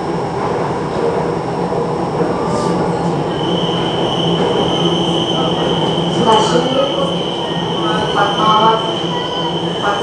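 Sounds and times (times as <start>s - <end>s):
train rumbling ride noise: 0.0s - 10.0s.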